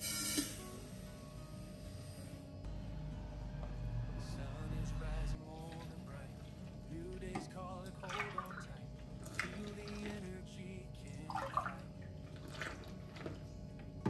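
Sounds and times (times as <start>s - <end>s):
soft background music: 0.0s - 14.0s
milk pouring and splashing: 5.6s - 10.4s, 11.0s - 13.9s.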